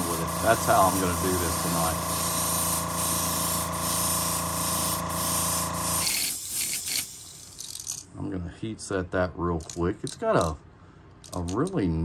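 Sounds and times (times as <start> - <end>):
airbrush air hiss: 0.0 - 7.6
machine hum: 0.0 - 8.1.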